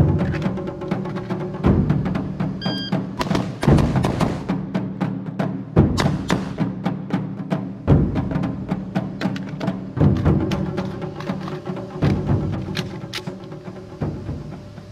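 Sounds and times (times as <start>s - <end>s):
music with percussive beat: 0.0s - 14.9s
heavy low drum hits: 3.2s - 4.8s.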